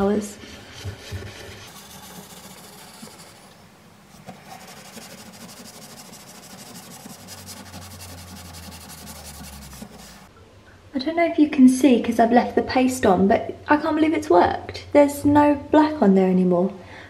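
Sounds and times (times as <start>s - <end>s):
toothbrush scrubbing rubber seal: 4.2s - 10.3s.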